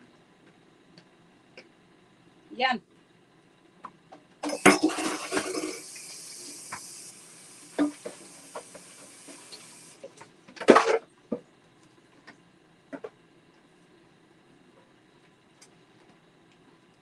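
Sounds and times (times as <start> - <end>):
dishes clinking: 4.4 - 5.8
faucet running into sink: 4.4 - 10.0.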